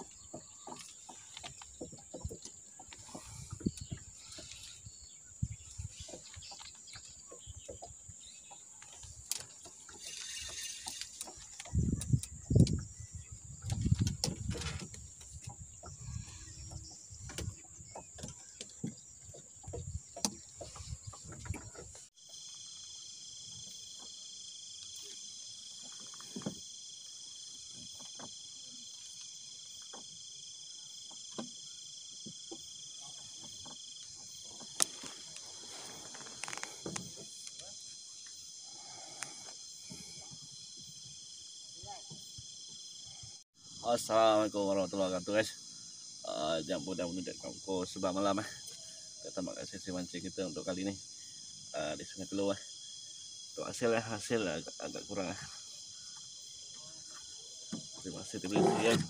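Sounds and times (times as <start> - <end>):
thumps and knocks on a boat: 0.0 - 4.5, 10.8 - 22.1
crickets chirping: 0.0 - 59.0
insects buzzing: 0.0 - 59.0.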